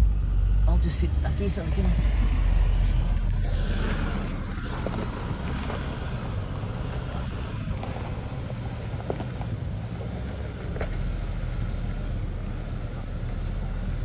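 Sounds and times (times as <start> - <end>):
engine low rumble: 0.0 - 14.0.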